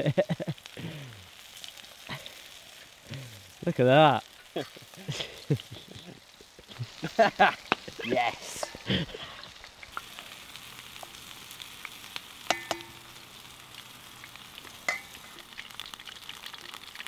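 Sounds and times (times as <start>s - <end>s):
deep-frying sizzle: 0.0s - 17.0s
sharp pops of hot oil: 7.6s - 8.0s, 9.7s - 10.2s, 10.9s - 17.0s.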